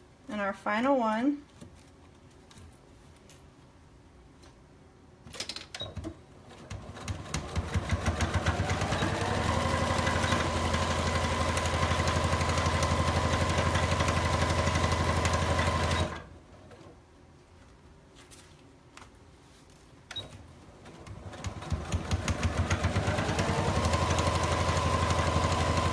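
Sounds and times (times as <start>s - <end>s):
sewing machine stitching: 5.9s - 16.8s, 20.8s - 25.9s.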